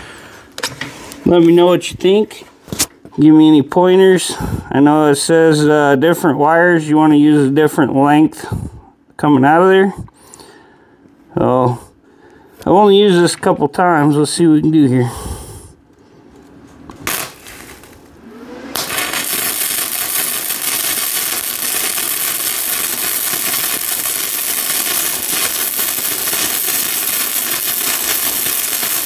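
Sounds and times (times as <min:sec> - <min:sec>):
welding arc crackling: 0:17.0 - 0:29.0.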